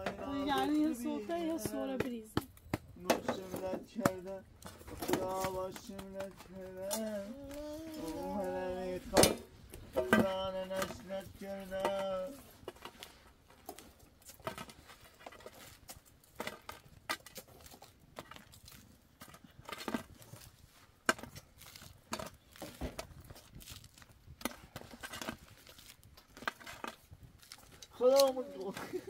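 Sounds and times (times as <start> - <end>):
flatbread crackling as torn: 21.4 - 28.3.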